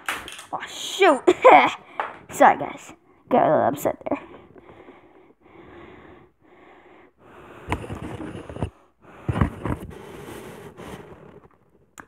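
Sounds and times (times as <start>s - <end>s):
person breathing heavily: 4.2s - 11.4s.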